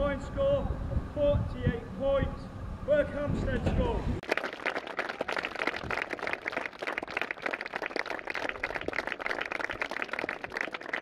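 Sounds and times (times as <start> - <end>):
people clapping: 4.2 - 11.0.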